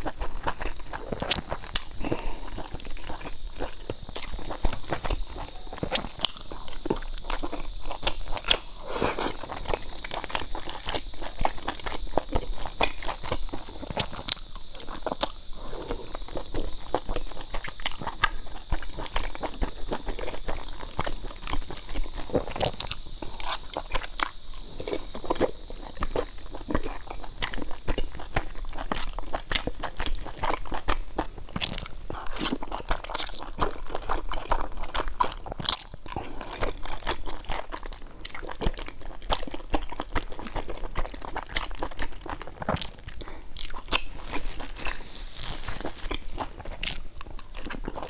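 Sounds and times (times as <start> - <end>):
wet chewing mouth clicks: 0.0 - 48.0.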